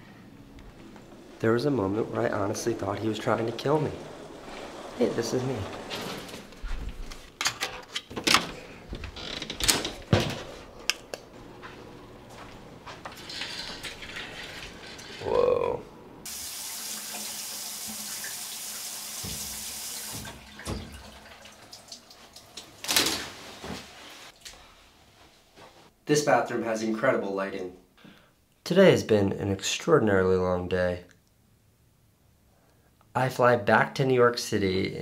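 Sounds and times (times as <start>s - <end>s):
shower running: 0.5s - 6.5s, 13.0s - 15.4s, 16.2s - 25.9s.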